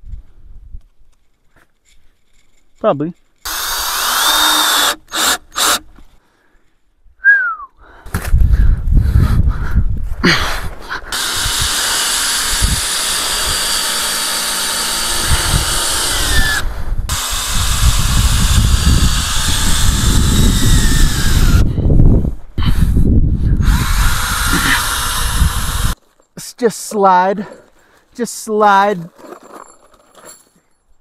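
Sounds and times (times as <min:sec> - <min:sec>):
power drill driving screws: 0:03.5 - 0:05.9, 0:11.1 - 0:21.7, 0:23.6 - 0:26.0.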